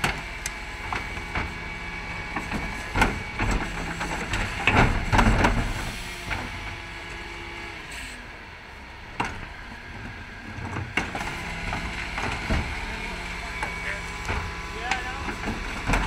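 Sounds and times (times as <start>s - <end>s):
truck and lift humming: 0.0s - 16.0s
bins banging and clattering: 2.2s - 6.7s, 10.5s - 16.0s.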